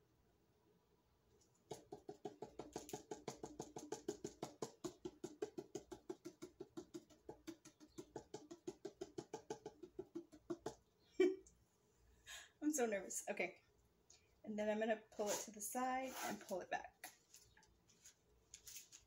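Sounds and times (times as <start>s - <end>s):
fingers tapping on a plastic cup: 1.6s - 10.9s.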